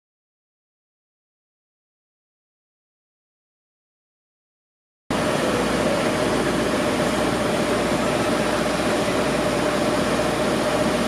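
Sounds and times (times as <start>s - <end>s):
constant hum: 5.1s - 11.0s.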